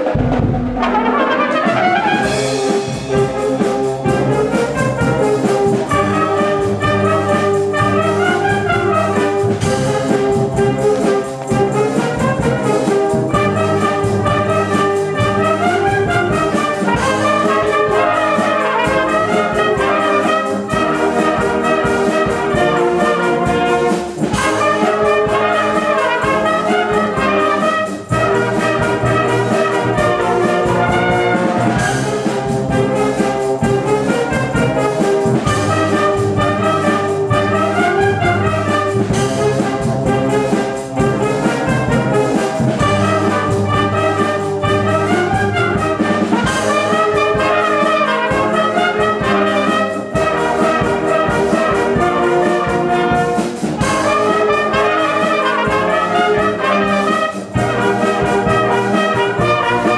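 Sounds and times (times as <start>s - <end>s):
wind band playing: 0.0s - 59.9s.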